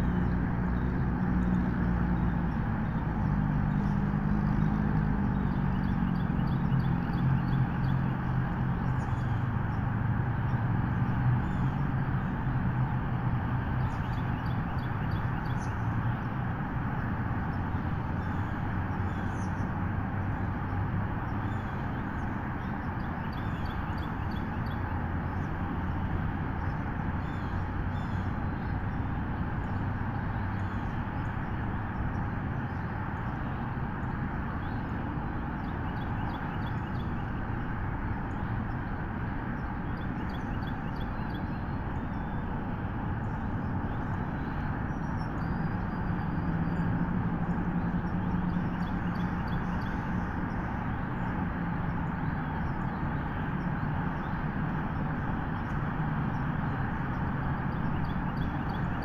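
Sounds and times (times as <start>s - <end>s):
low droning hum: 0.0s - 59.0s.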